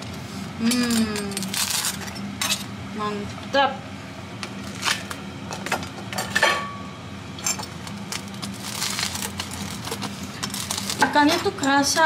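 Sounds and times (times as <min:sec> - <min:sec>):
steady low hum: 0:00.0 - 0:12.0
knife crunching fried food: 0:08.0 - 0:11.1.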